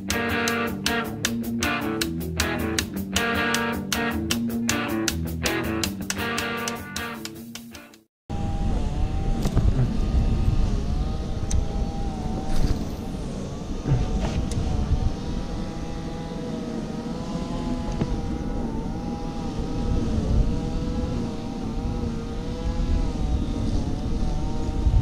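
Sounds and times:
motor droning hum: 8.3s - 25.0s
wind rumble on microphone: 8.3s - 25.0s.

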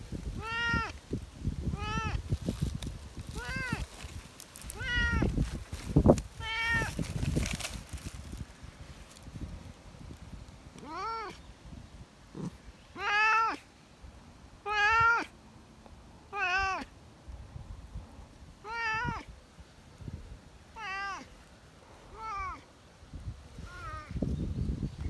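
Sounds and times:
cat meowing: 0.4s - 1.0s, 1.7s - 2.2s, 3.4s - 3.8s, 4.7s - 5.3s, 6.4s - 7.0s, 10.8s - 11.4s, 12.4s - 13.6s, 14.6s - 15.3s, 16.3s - 16.9s, 18.6s - 19.3s, 20.8s - 21.3s, 22.1s - 22.6s.

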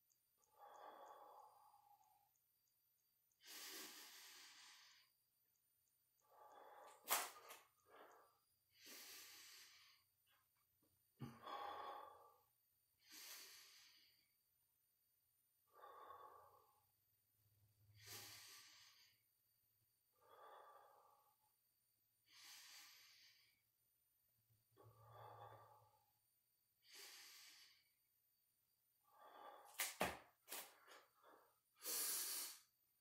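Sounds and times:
man breathing heavily: 3.4s - 5.1s, 6.2s - 10.5s, 11.2s - 14.2s, 26.8s - 27.9s, 29.0s - 32.7s.

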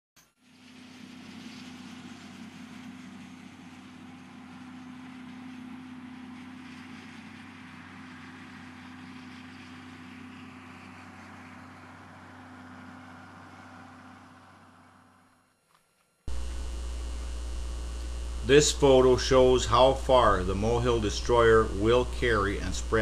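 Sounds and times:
vehicle engine running: 0.6s - 15.5s, 16.3s - 23.0s
faint rushing noise: 16.3s - 23.0s.

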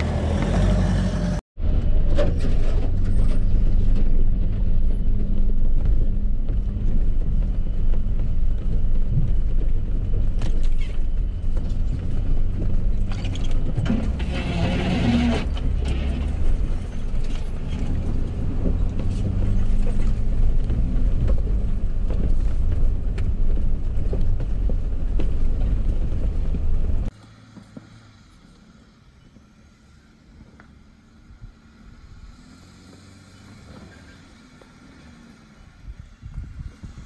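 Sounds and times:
vehicle engine running: 0.0s - 37.0s
vehicle knocking and creaking: 1.6s - 28.6s.

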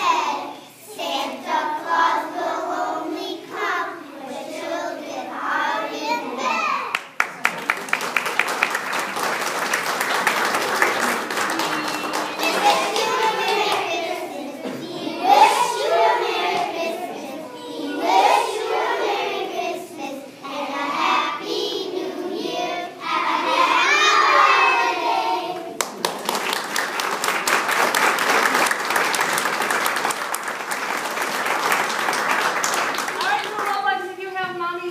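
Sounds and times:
children singing together: 0.0s - 6.7s, 10.4s - 25.8s
audience applause: 6.9s - 14.0s, 25.8s - 33.8s.

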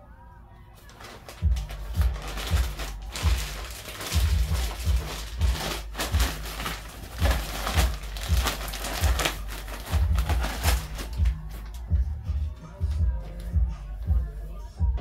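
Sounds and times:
plastic bag crinkling: 0.8s - 11.9s
background music with bass beat: 0.9s - 15.0s.

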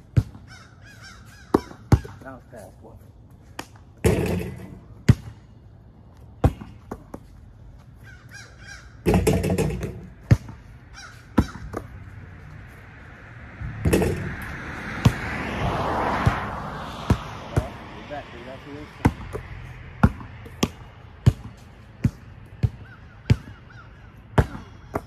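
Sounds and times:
basketball bouncing on concrete: 0.0s - 0.5s, 1.5s - 2.2s, 3.6s - 5.4s, 6.2s - 7.4s, 9.0s - 12.1s, 13.8s - 14.4s, 15.0s - 15.3s, 19.0s - 25.0s
crows cawing: 0.4s - 2.2s, 8.0s - 9.2s, 10.8s - 11.9s, 22.6s - 25.0s.

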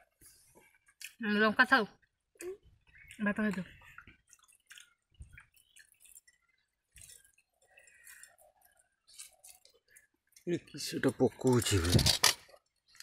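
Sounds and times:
wet clicks and squishes of rice: 2.0s - 11.7s.

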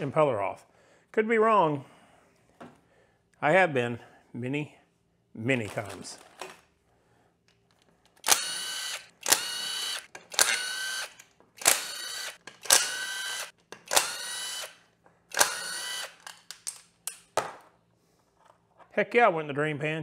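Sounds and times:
cordless drill whirring: 8.2s - 16.2s.

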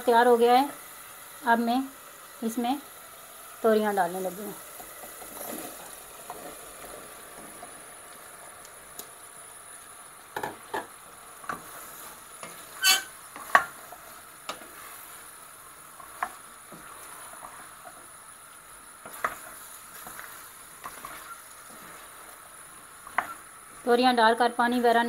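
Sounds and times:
food sizzling in a pan: 0.0s - 25.0s
spoon knocking and scraping pan: 10.4s - 11.8s, 12.4s - 15.0s, 16.0s - 18.0s, 19.0s - 22.0s, 23.0s - 23.4s.

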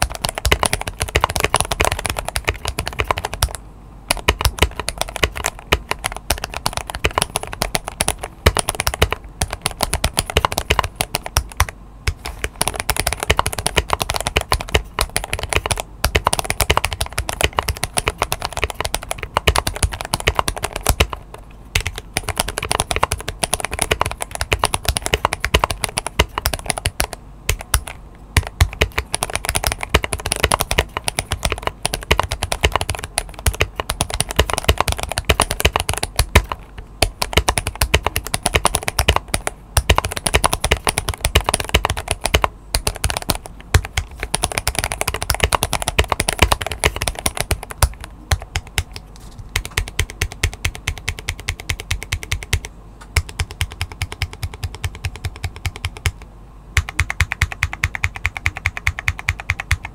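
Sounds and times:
fast mechanical keyboard typing: 0.0s - 56.2s, 56.8s - 59.9s.

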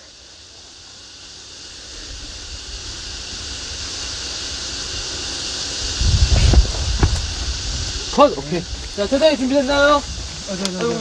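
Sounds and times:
wind on microphone: 5.8s - 10.8s.

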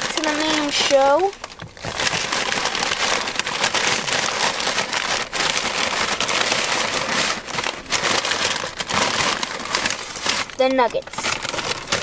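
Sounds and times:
paper bag rustling: 0.0s - 12.0s.

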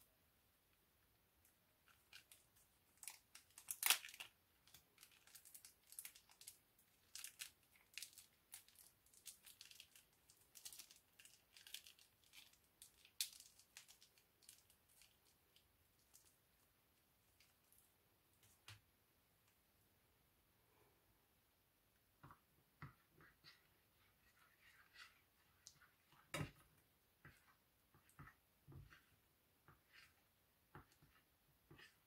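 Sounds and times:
plastic bag crinkling: 3.0s - 16.3s.

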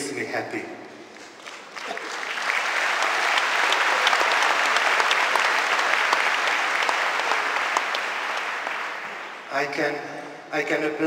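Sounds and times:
large audience applauding: 1.1s - 9.6s.

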